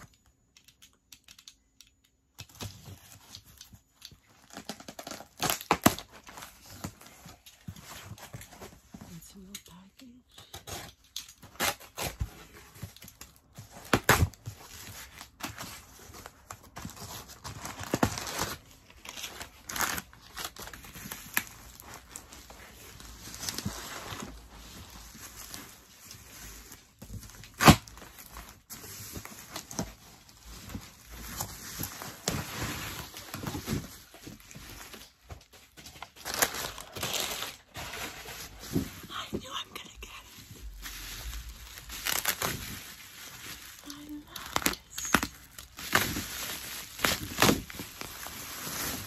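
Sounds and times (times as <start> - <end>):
packing tape tearing: 2.4 - 7.5, 10.4 - 24.4, 27.1 - 35.1, 35.8 - 38.8, 40.7 - 49.0
bubble wrap rustling: 2.4 - 49.0.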